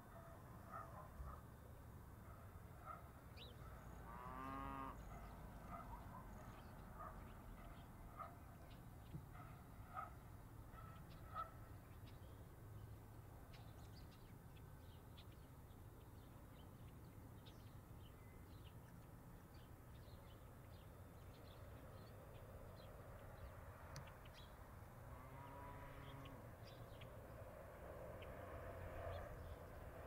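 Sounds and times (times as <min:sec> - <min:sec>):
small birds chirping: 0:03.3 - 0:04.0, 0:05.0 - 0:24.7, 0:25.4 - 0:27.4.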